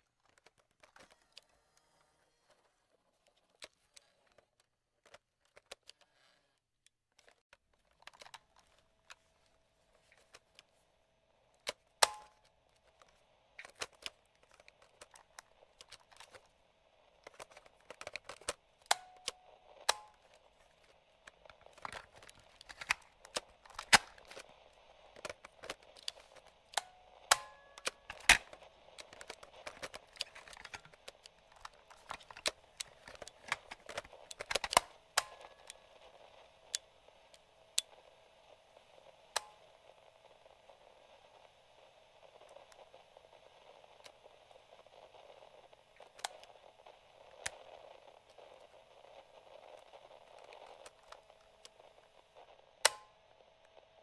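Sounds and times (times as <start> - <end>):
faint hum: 0.0 - 54.0
static hiss: 8.1 - 54.0
plastic switches clicking: 11.6 - 12.4.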